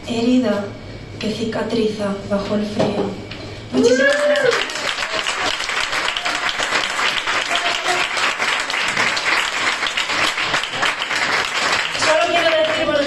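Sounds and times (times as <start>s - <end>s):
audience applauding: 3.9s - 13.0s.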